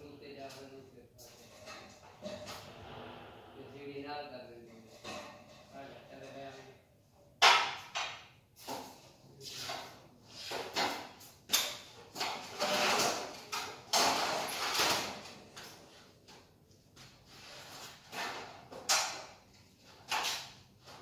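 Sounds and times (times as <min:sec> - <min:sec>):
metal parts scraping and clanking: 0:12.4 - 0:15.0.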